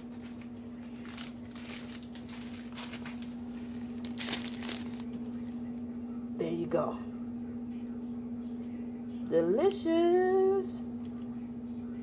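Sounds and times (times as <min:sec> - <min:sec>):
plastic packet crinkling: 0:00.0 - 0:05.5.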